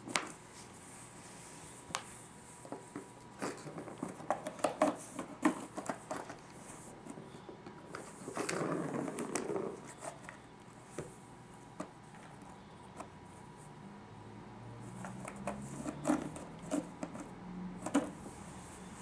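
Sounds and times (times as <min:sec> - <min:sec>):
rustling scrape: 0:00.0 - 0:11.2.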